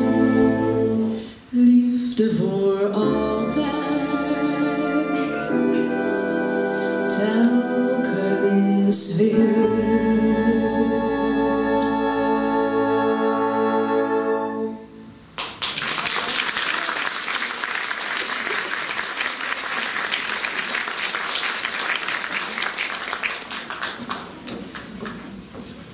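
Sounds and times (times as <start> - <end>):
audience applauding: 15.4 - 25.5.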